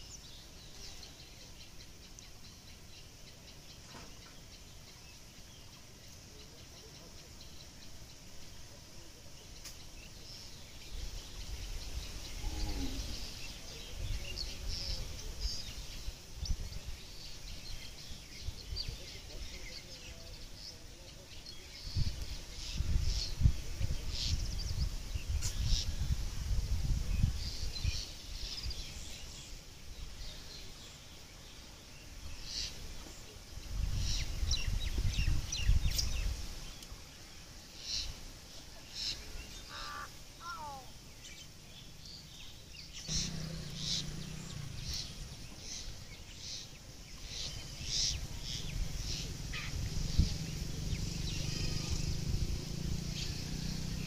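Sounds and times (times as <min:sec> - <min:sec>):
birds chirping: 0:00.0 - 0:26.2, 0:26.8 - 0:54.0
low rumbling noise: 0:41.6 - 0:46.9, 0:47.5 - 0:54.0.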